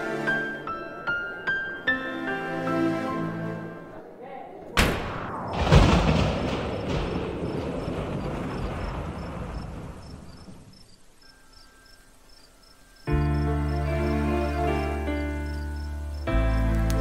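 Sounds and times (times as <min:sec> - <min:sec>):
music: 0:00.0 - 0:04.2, 0:11.2 - 0:17.0
cricket chirping: 0:05.3 - 0:16.8
steady rain falling: 0:05.6 - 0:17.0.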